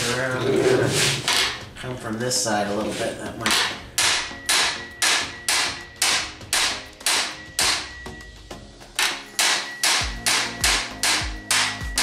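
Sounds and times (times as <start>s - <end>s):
hammer striking sheet steel: 3.4s - 8.0s, 9.0s - 12.0s.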